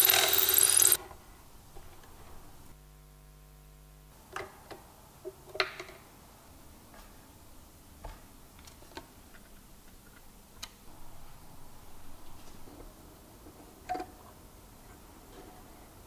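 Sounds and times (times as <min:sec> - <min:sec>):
small hard parts clicking on wood: 0:00.0 - 0:01.0.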